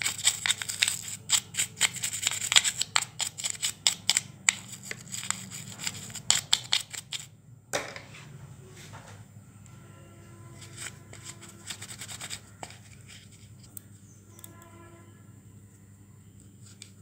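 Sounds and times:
cotton swab scrubbing plastic: 0.0s - 7.3s, 10.6s - 13.8s.

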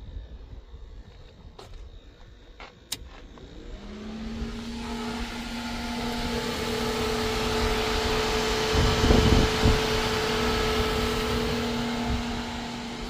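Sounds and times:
electric fans humming and rushing air: 2.8s - 13.0s.

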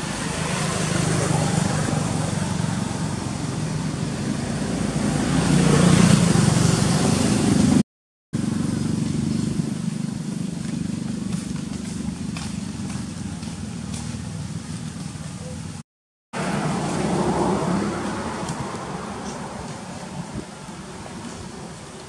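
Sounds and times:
vehicle engine running: 0.0s - 7.8s, 8.4s - 15.8s.

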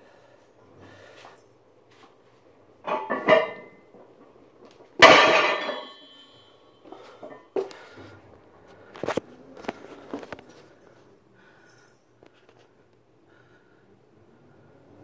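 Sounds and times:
weight plates clanking on floor: 2.9s - 3.8s, 5.0s - 6.0s.

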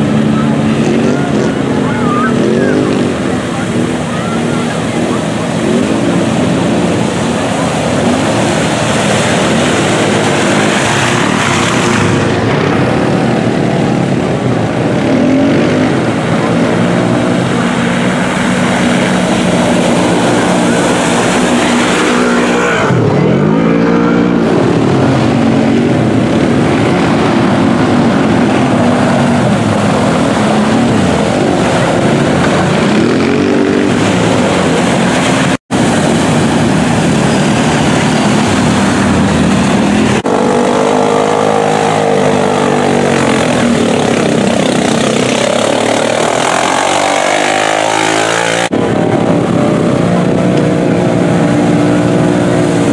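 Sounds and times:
utv engine revving: 0.0s - 52.9s.

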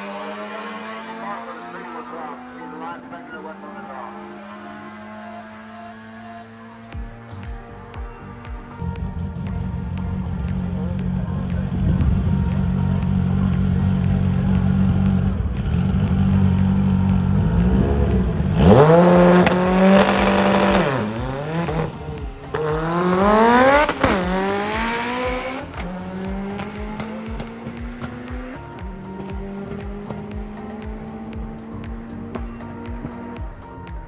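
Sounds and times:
race car accelerating with gear shifts: 0.0s - 34.0s
car engine idling: 8.8s - 33.6s.

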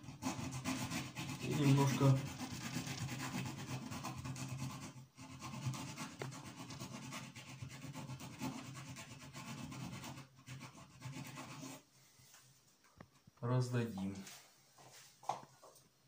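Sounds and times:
file scraping in drywall: 0.0s - 11.8s.

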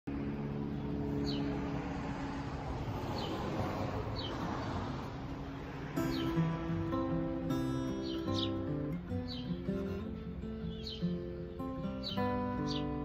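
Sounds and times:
road traffic passing: 0.0s - 13.0s
bird chirping: 0.6s - 1.6s, 4.1s - 4.6s, 6.0s - 13.0s.

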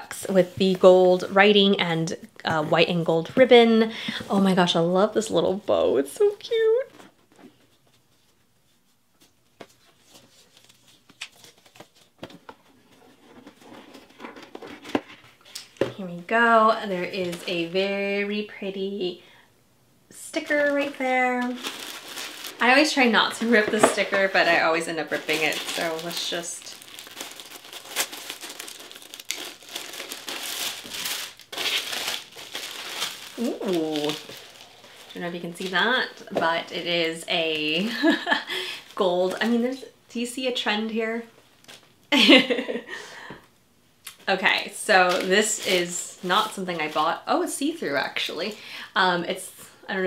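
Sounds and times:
paper packaging rustling: 20.4s - 36.9s, 44.9s - 47.2s.

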